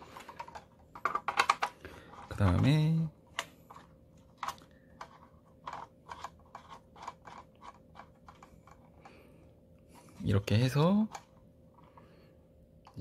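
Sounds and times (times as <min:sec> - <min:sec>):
faint steady hum: 0:00.0 - 0:13.0
plastic and metal parts clicking: 0:00.2 - 0:02.7, 0:03.3 - 0:09.1.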